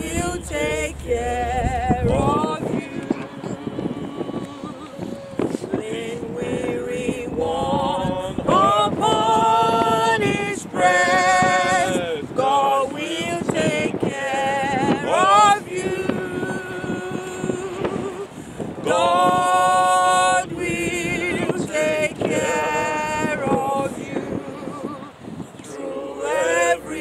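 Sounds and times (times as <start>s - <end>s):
group singing a hymn unaccompanied: 0.0s - 27.0s
woman singing long held notes: 0.0s - 27.0s.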